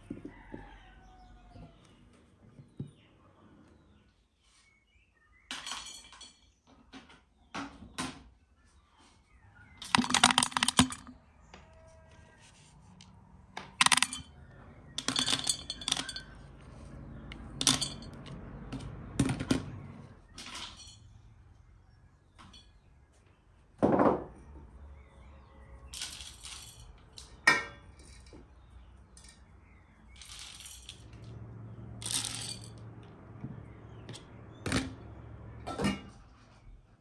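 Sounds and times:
dried fruit and nuts rattling: 0:09.7 - 0:11.2, 0:13.8 - 0:21.1, 0:25.8 - 0:35.4.

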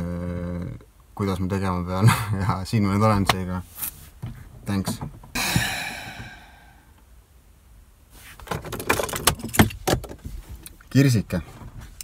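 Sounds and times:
car keys jangling: 0:08.4 - 0:10.8.

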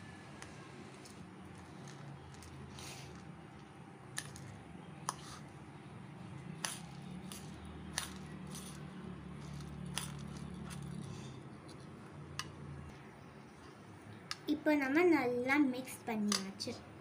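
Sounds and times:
fork scraping through rice: 0:05.0 - 0:05.5, 0:06.6 - 0:11.9.

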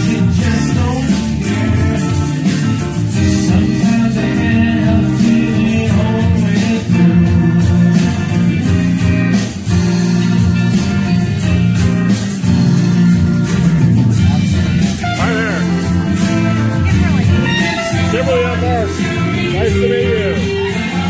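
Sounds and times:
man singing: 0:00.0 - 0:09.3, 0:14.3 - 0:21.0
acoustic guitar strumming: 0:00.0 - 0:21.0.

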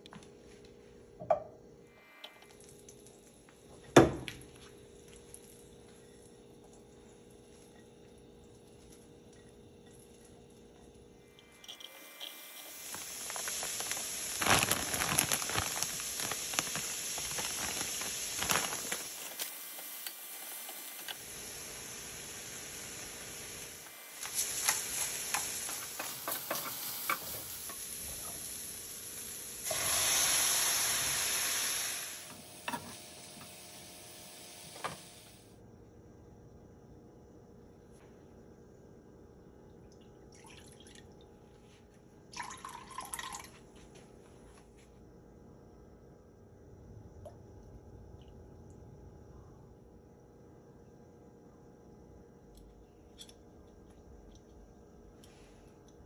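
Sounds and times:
vegetables sizzling in a pan: 0:11.5 - 0:35.4.

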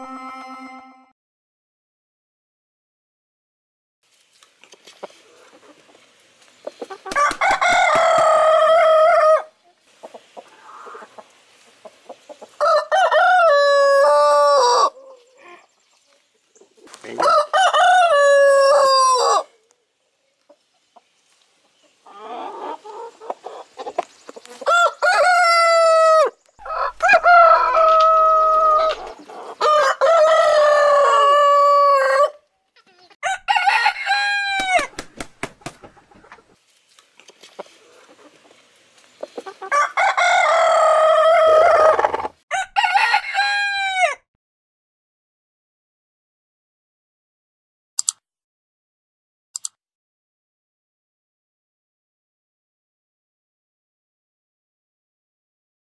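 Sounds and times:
roosters crowing: 0:06.9 - 0:09.6, 0:12.5 - 0:15.4, 0:17.0 - 0:19.6, 0:24.4 - 0:32.4, 0:33.2 - 0:35.0, 0:39.4 - 0:44.2.

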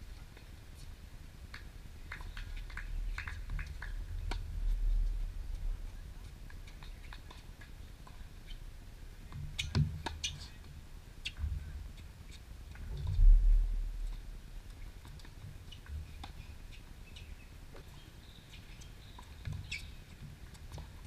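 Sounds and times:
low rumble: 0:12.9 - 0:14.6.

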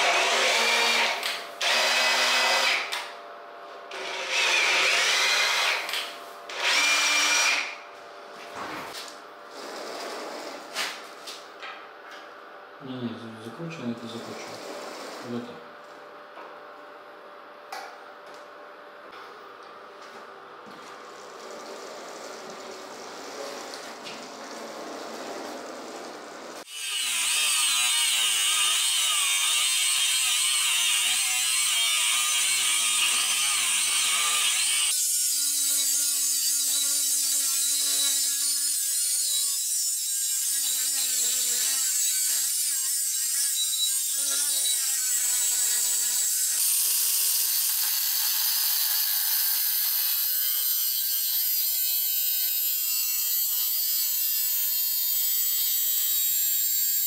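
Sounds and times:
angle grinder cutting steel: 0:00.0 - 0:03.0, 0:03.9 - 0:07.8, 0:26.6 - 0:57.0.

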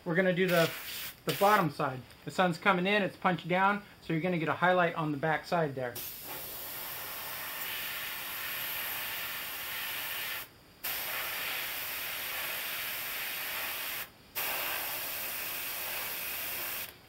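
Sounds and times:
airbrush spraying hiss: 0:00.5 - 0:01.7, 0:06.0 - 0:17.0.

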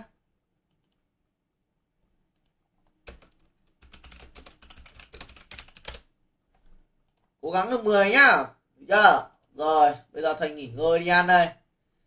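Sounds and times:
typing on computer keyboard: 0:02.4 - 0:06.1.

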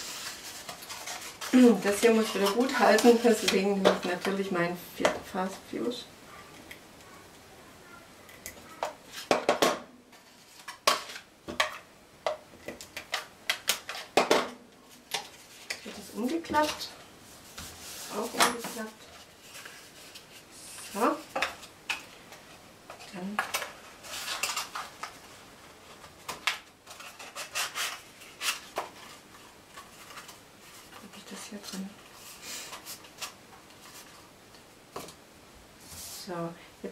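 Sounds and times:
cardstock rubbing and scraping: 0:00.0 - 0:04.3, 0:26.8 - 0:34.2.

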